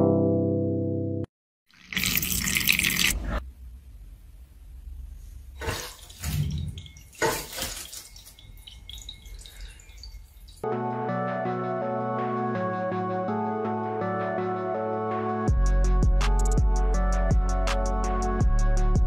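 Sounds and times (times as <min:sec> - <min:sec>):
liquid pouring and splashing: 0:01.7 - 0:03.4, 0:05.6 - 0:10.6.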